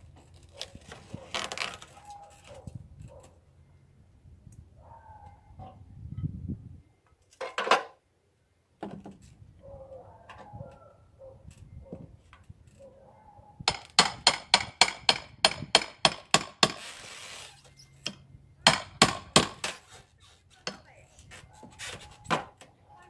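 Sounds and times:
brief scraping hiss: 16.8 - 17.8.

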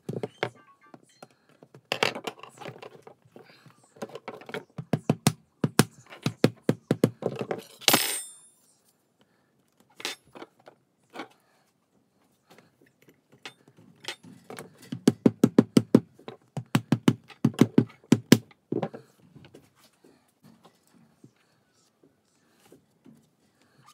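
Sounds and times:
rubber mallet tapping plastic: 14.9 - 18.9.

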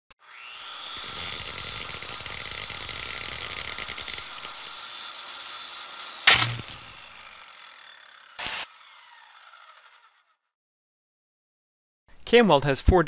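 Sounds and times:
sparks crackling and sizzling: 6.3 - 7.1, 8.4 - 8.7.

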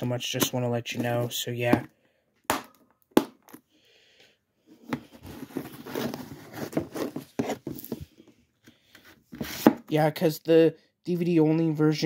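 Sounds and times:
rustling and scraping: 4.7 - 9.9.

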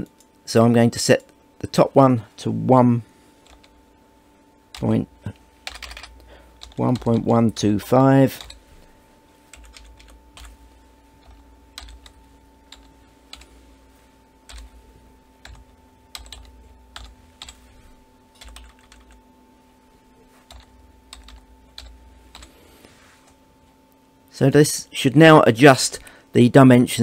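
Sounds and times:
faint electrical hum: 0.0 - 27.0.

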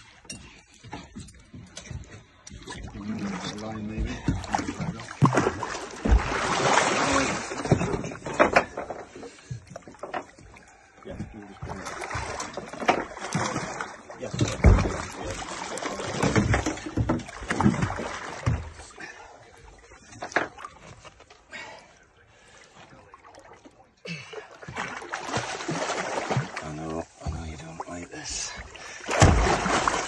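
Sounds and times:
water splashing around a boat: 0.0 - 30.0
heavy thumps: 6.0 - 6.5.

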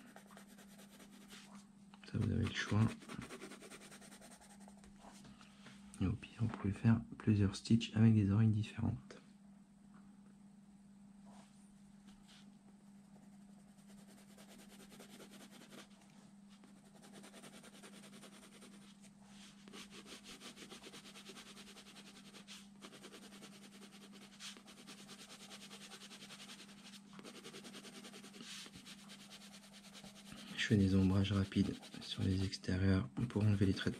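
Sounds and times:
pencil scratching on paper: 0.0 - 1.5, 2.2 - 4.8, 13.0 - 15.9, 16.8 - 18.9, 19.7 - 32.5, 33.4 - 33.9
steady low hum: 0.0 - 33.9.

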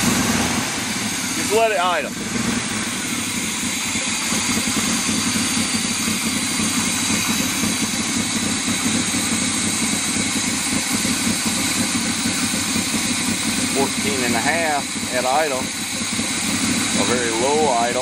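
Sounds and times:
truck engine idling rough: 0.0 - 18.0.

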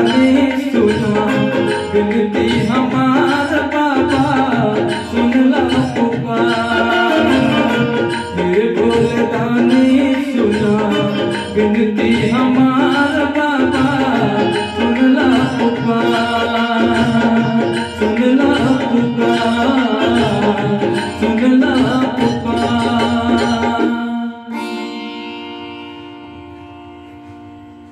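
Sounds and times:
held keyboard chord: 0.0 - 27.9
keyboard melody: 0.0 - 27.9
tabla-style rhythm loop: 0.0 - 27.9.

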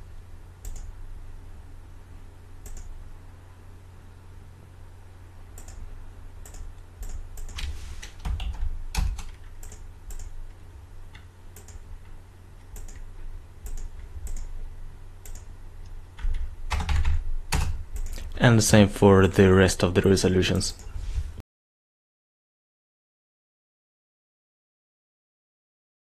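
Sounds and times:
steady low hum: 0.0 - 21.4
computer mouse clicks: 0.6 - 0.9, 2.6 - 2.9, 5.6 - 11.8, 12.6 - 14.5, 15.2 - 16.9, 17.6 - 18.3
keyboard keys clicking: 2.6 - 2.9, 5.6 - 5.8, 6.4 - 10.4, 11.1 - 11.8, 12.7 - 14.5, 15.2 - 15.5, 16.2 - 18.3.

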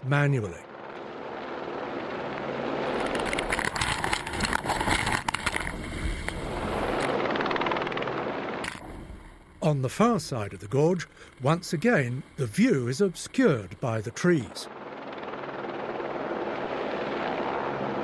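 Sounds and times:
helicopter rotor and engine: 0.0 - 18.0
crackles and clicks: 0.6 - 16.3.

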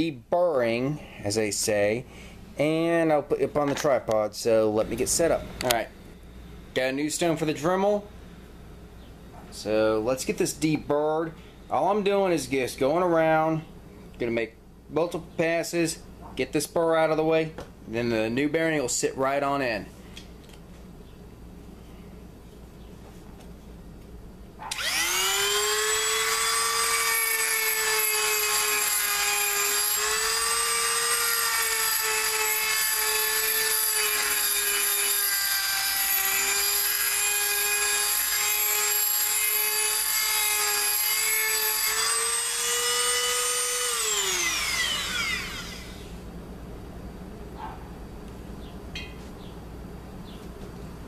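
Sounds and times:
rotary tool grinding metal: 24.7 - 46.1.

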